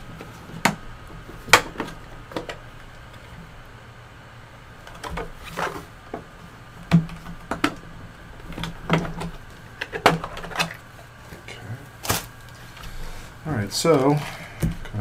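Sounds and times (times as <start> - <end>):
steady low hum: 0.0 - 15.0
plastic case clicks and knocks: 6.9 - 7.8.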